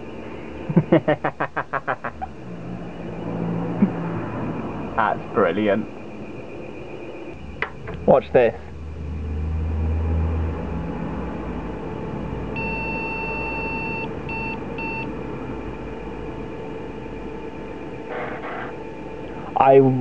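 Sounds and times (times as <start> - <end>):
computer humming: 0.0 - 20.0
computer speaker beeps: 3.0 - 7.4, 12.6 - 15.1, 18.1 - 18.7
floppy drive noise: 10.4 - 19.5.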